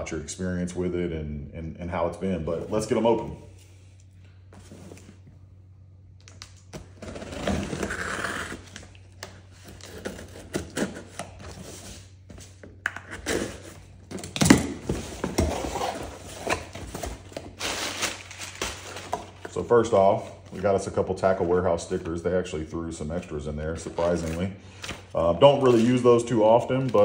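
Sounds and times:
paper packing rustling: 13.2s - 22.2s, 23.7s - 27.0s.

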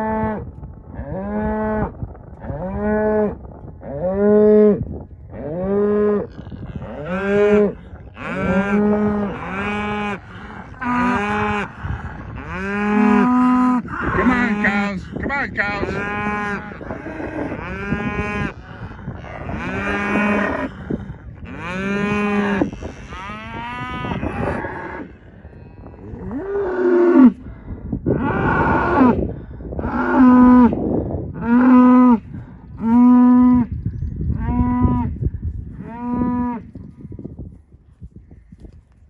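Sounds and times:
cattle mooing: 5.4s - 15.0s, 15.7s - 27.4s.

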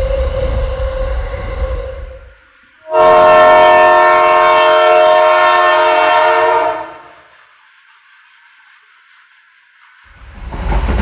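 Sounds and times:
toy train electronic horn: 0.0s - 7.3s.

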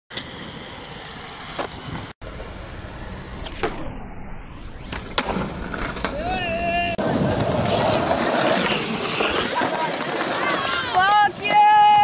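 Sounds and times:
skateboard wheels rolling on pavement: 0.1s - 3.6s, 4.8s - 12.0s
whoosh filter effect: 2.6s - 7.0s
skateboard clacking: 7.0s - 12.0s.

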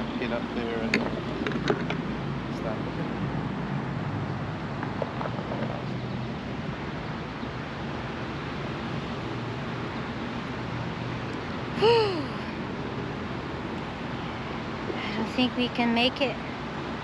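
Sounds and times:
wind noise on microphone: 0.0s - 11.8s
boat engine humming: 0.0s - 17.0s.

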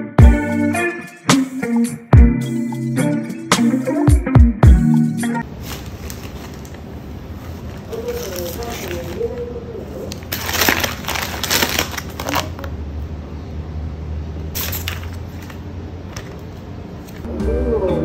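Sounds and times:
plastic packaging crinkling: 5.4s - 12.7s.

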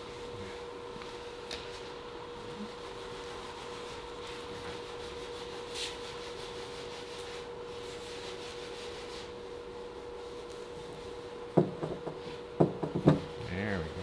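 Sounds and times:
electrical hum: 0.0s - 14.0s
rubbing on fiberglass: 2.7s - 11.2s.

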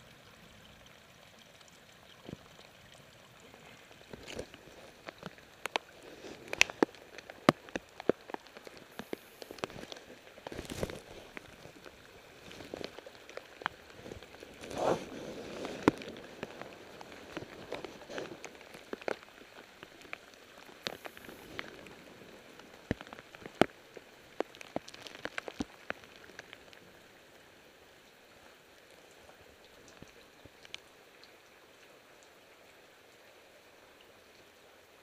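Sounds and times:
faint rain patter: 0.0s - 35.0s
raindrops ticking on hard surfaces: 0.0s - 35.0s.

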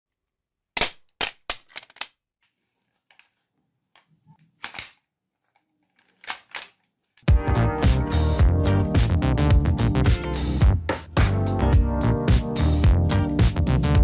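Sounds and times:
toy blaster clicks and knocks: 0.8s - 2.2s, 5.9s - 6.9s.

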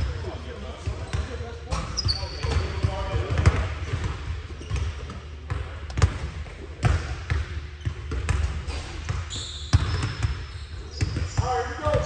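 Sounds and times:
basketball bouncing on gym floor: 0.8s - 12.0s
shoe squeaks: 1.0s - 2.8s, 9.2s - 11.4s.

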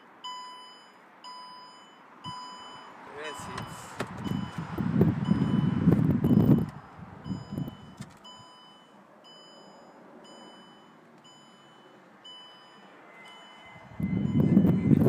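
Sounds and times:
electronic warning beep: 0.2s - 15.0s
low wind rumble: 3.6s - 8.1s, 13.6s - 15.0s.

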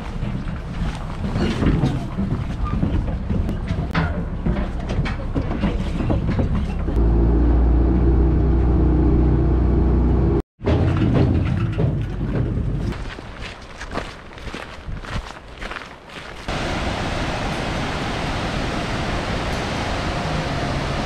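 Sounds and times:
footsteps on metal deck: 0.0s - 7.0s, 10.6s - 16.5s
footsteps on metal gangway: 0.0s - 7.0s, 10.6s - 16.5s
wind: 0.0s - 21.0s.

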